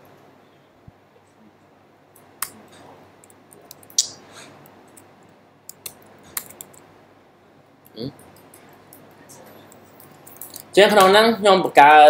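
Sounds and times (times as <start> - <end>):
keyboard and mouse clicks: 5.7 - 6.9.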